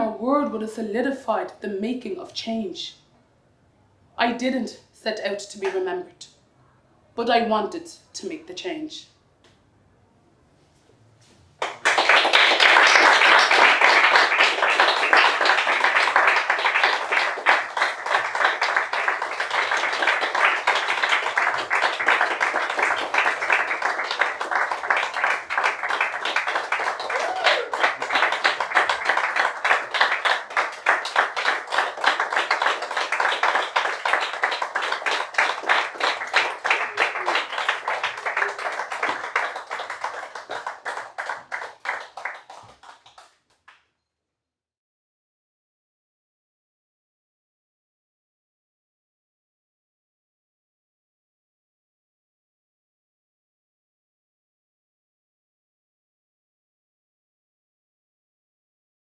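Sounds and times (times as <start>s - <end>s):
audience applauding: 11.6s - 43.4s.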